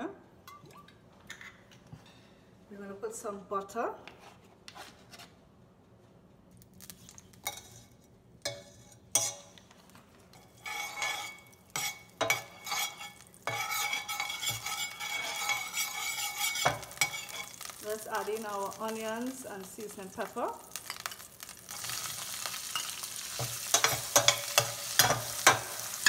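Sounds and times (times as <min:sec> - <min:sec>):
butter sizzling: 0:06.7 - 0:26.0
utensils clinking on metal pot: 0:10.3 - 0:18.7, 0:20.8 - 0:26.0.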